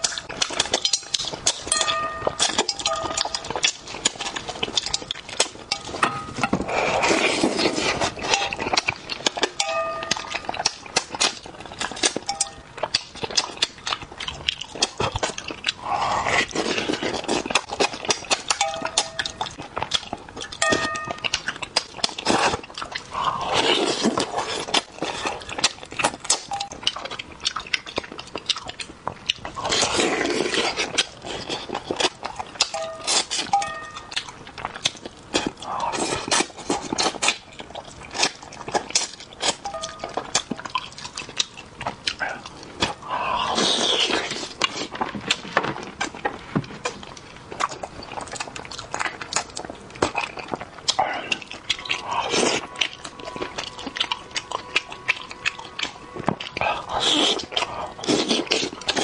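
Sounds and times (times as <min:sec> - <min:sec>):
chopsticks clinking metal bowl: 0:00.0 - 0:06.6, 0:08.2 - 0:11.3, 0:12.0 - 0:12.6, 0:18.4 - 0:19.6, 0:20.5 - 0:21.6, 0:26.5 - 0:26.8, 0:32.6 - 0:34.3, 0:39.6 - 0:40.9
wet chewing and lip smacking: 0:00.0 - 0:59.0
slurps: 0:06.4 - 0:08.8, 0:56.6 - 0:59.0.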